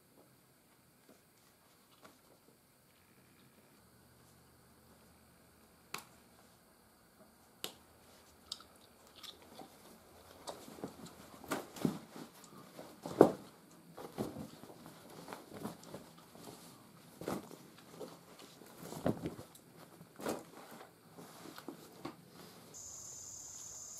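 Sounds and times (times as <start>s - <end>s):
leather rustling and flapping: 14.0s - 22.5s.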